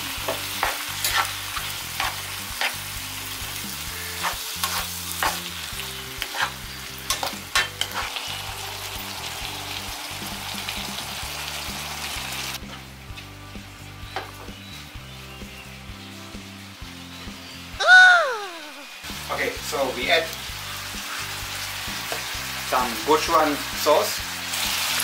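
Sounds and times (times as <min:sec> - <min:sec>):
food sizzling in a frying pan: 0:00.0 - 0:25.0
wooden spatula scraping pan: 0:00.6 - 0:01.4, 0:04.1 - 0:05.4, 0:06.2 - 0:08.1.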